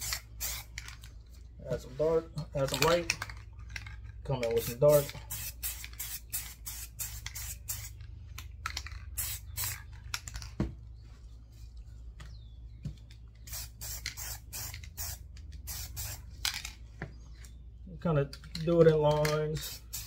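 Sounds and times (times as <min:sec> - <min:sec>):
spray paint can hissing: 0:00.0 - 0:00.8, 0:04.6 - 0:08.0, 0:08.7 - 0:09.9, 0:13.4 - 0:16.3, 0:19.6 - 0:20.0.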